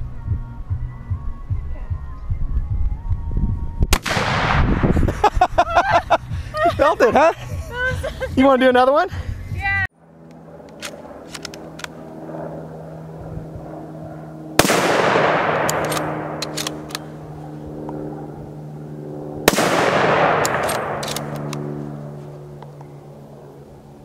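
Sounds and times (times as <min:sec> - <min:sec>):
rifle shots with rolling echo: 0:03.9 - 0:05.2, 0:10.5 - 0:18.4, 0:19.3 - 0:22.2
rifle bolt clicks: 0:10.6 - 0:12.0, 0:15.6 - 0:17.1, 0:20.4 - 0:21.7.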